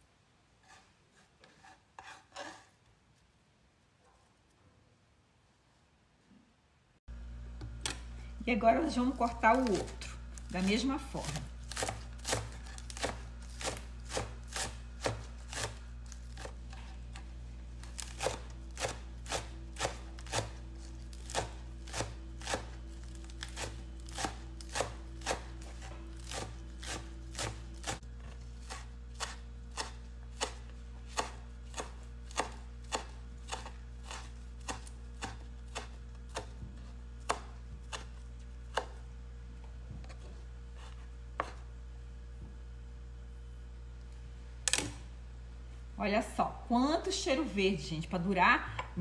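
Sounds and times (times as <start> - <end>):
steady low hum: 6.9 - 49.0
knife chopping on wooden board: 9.5 - 10.0, 11.2 - 39.0, 39.8 - 41.6.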